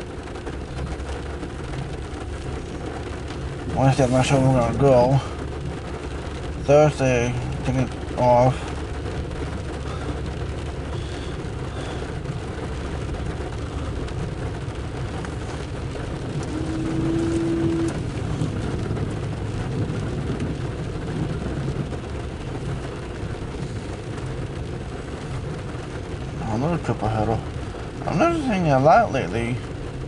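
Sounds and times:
car cabin low rumble: 0.0 - 30.0
rain on windshield: 0.0 - 30.0
windshield wiper motor hum: 8.7 - 26.3.

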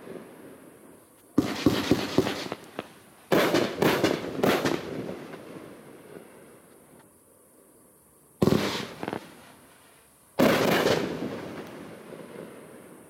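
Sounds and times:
firework bangs: 1.4 - 6.3, 8.4 - 9.5, 10.4 - 13.0.

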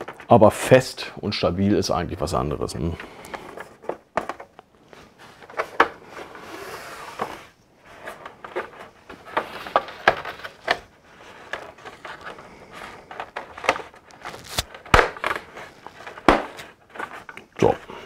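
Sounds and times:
plastic snaps: 13.6 - 15.4.

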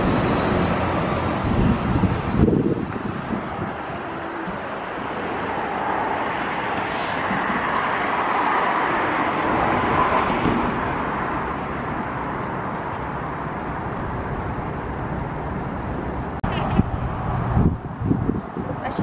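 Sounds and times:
road traffic passing: 0.0 - 19.0.

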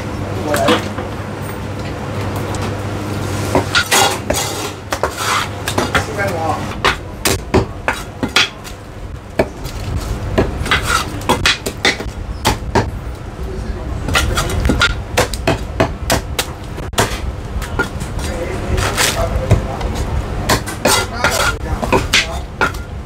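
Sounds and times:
cleaver chopping on wooden block: 10.4 - 12.9, 14.1 - 17.9.

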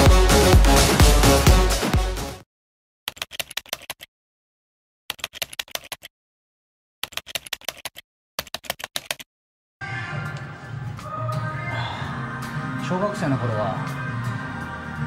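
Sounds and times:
electronic dance music: 0.0 - 2.4
rapid keyboard key clicks: 3.1 - 4.1, 5.1 - 6.1, 7.0 - 9.3.

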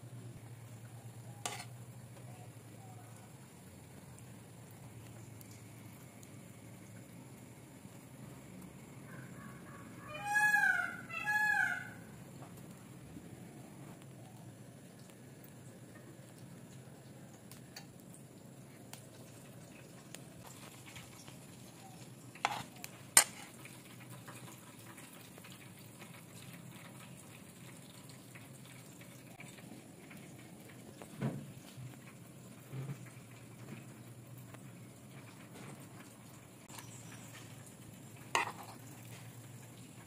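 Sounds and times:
low steady hum: 0.0 - 10.1
metal spoon clinking on pan: 1.4 - 1.7, 22.4 - 23.5.

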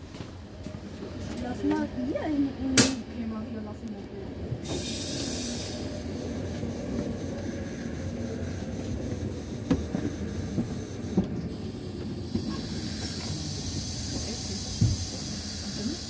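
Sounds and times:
train rumbling slowly: 0.0 - 16.0
train running gear clunks: 2.7 - 3.2, 9.1 - 16.0
train brake hiss: 4.6 - 16.0.

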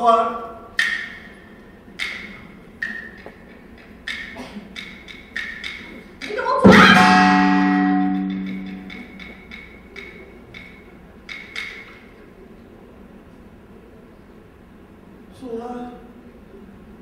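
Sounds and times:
gong ringing: 6.6 - 9.5.

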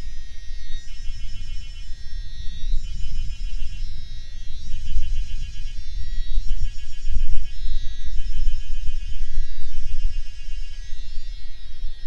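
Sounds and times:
high fast-pulsing buzz: 0.0 - 12.0.

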